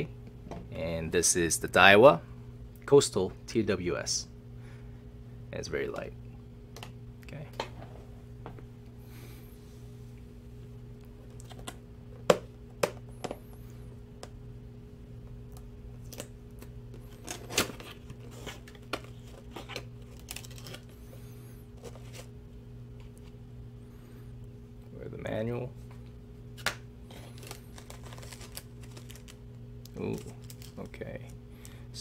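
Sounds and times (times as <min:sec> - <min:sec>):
steady low hum: 0:00.0 - 0:32.0
paper rustling: 0:27.1 - 0:29.4.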